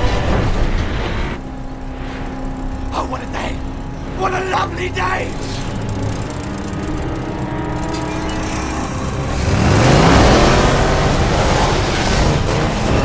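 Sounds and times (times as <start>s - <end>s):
car engine revving: 3.6s - 13.0s.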